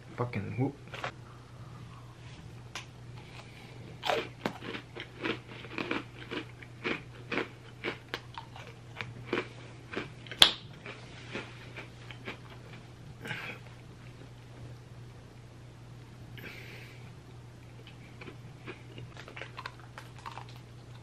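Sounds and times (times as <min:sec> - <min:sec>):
cookie crunching: 0:03.2 - 0:12.8, 0:17.8 - 0:21.0.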